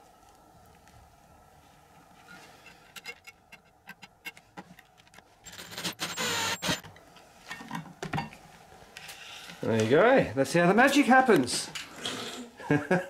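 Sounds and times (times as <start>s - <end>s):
screw rasping into wood: 5.5s - 6.8s.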